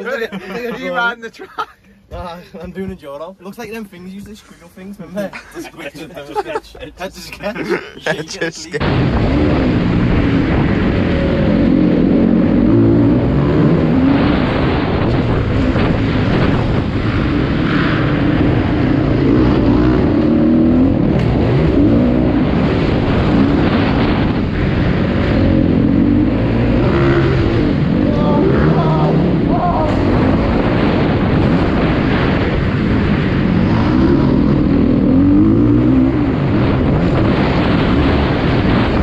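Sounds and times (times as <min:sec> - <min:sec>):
motocross bike engine revving: 0:08.8 - 0:39.0.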